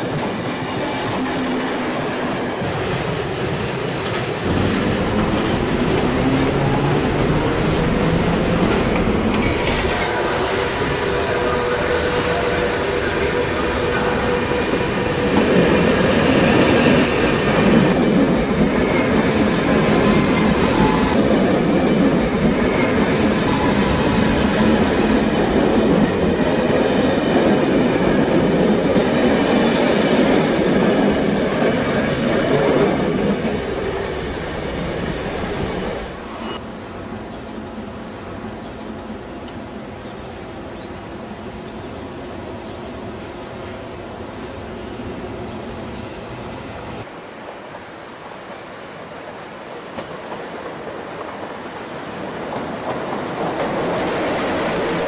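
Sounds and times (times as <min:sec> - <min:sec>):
train wheels clattering over rails: 0:49.9 - 0:55.0.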